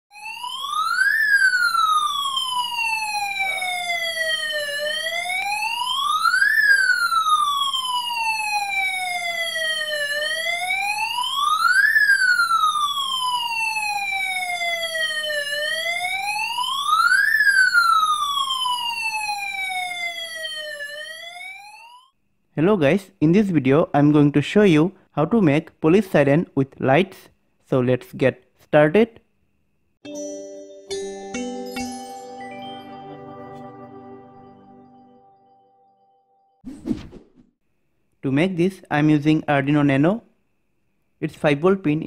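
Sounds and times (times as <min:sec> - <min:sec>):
electronic siren wailing: 0:00.1 - 0:22.1.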